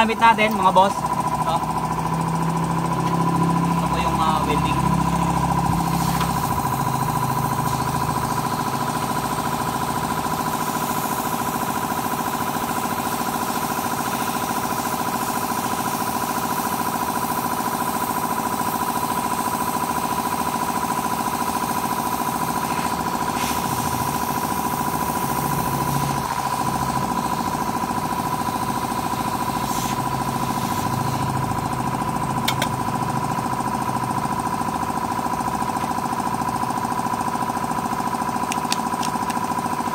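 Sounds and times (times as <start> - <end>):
high whine: 0.0 - 10.5
air compressor running: 0.0 - 39.9.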